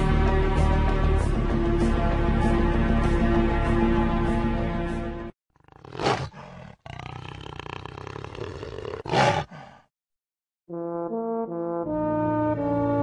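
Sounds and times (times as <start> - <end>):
lion roaring: 5.6 - 9.8
brass fanfare: 10.7 - 13.0.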